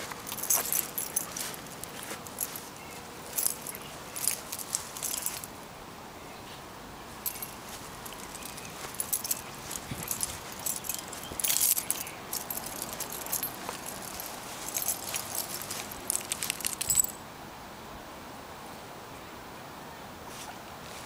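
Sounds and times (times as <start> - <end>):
small metal pieces jingling: 0.0 - 5.5, 7.2 - 17.2.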